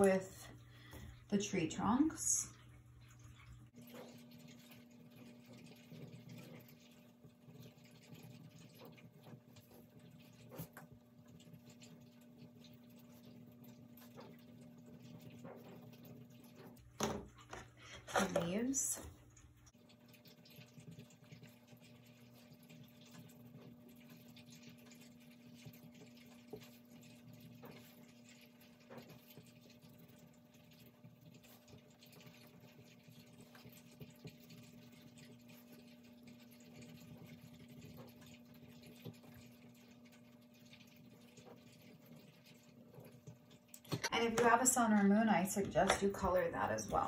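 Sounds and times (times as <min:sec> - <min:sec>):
low steady hum: 0:00.0 - 0:47.0.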